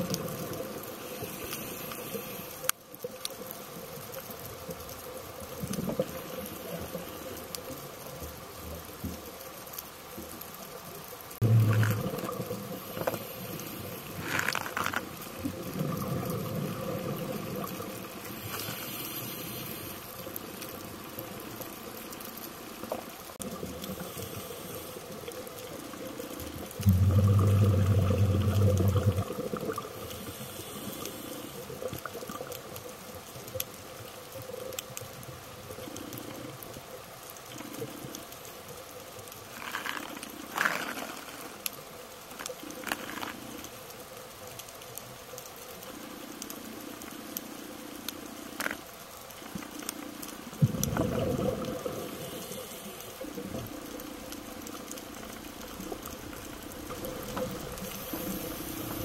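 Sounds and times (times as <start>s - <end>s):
faint crackle of clicks: 0.0s - 59.0s
underwater regulator bubbles: 11.4s - 13.6s, 26.7s - 30.4s, 50.6s - 52.6s.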